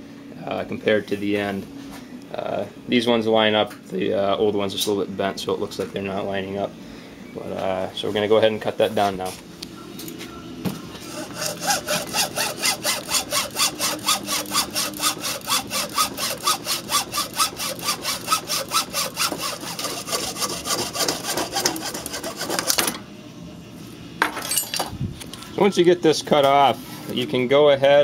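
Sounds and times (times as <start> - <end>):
hacksaw cutting plastic: 11.0 - 23.0.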